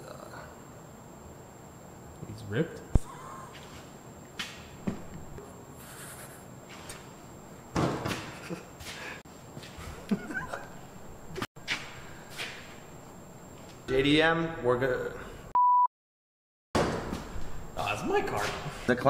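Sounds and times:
man laughing under his breath: 3.0s - 3.6s, 8.2s - 9.2s, 9.9s - 10.8s.

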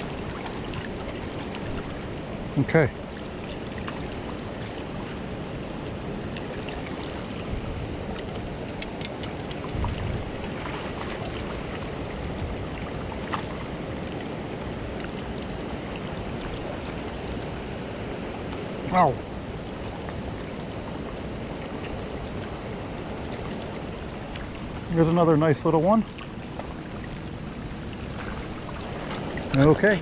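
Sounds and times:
river water rushing: 0.0s - 30.0s.

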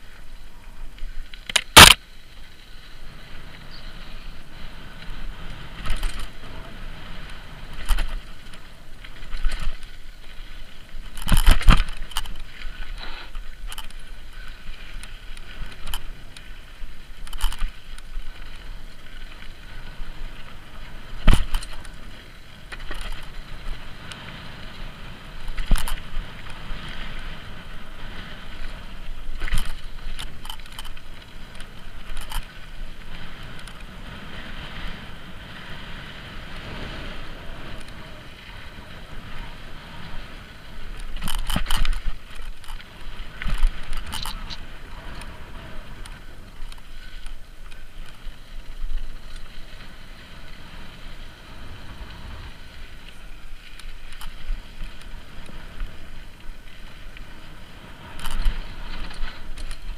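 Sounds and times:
bike tyres rushing on dirt: 0.0s - 59.9s
bike rattling and knocking: 5.0s - 34.0s, 40.4s - 50.6s, 52.9s - 59.9s.

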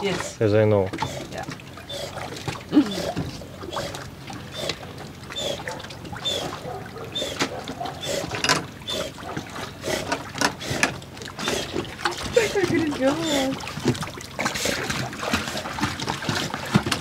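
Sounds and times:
dog paddling in water: 0.0s - 17.0s
water splashing against boat: 0.0s - 17.0s.

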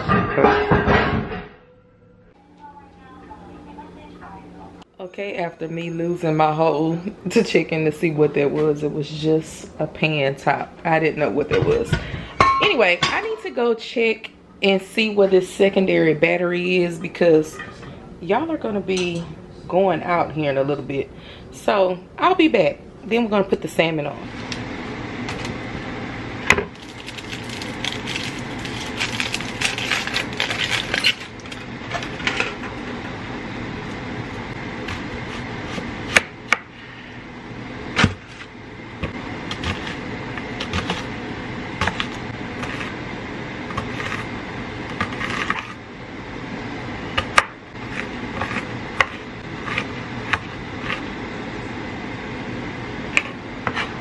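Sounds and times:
aluminium foil crinkling: 26.7s - 32.3s.

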